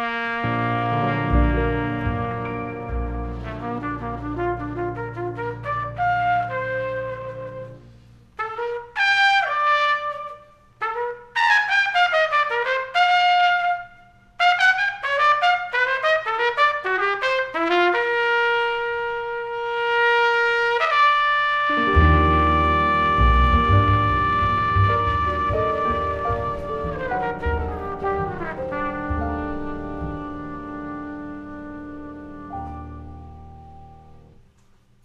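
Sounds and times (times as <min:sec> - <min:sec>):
jazz trumpet playing: 0:00.0 - 0:34.5
band playing low: 0:00.4 - 0:08.1, 0:21.7 - 0:34.3.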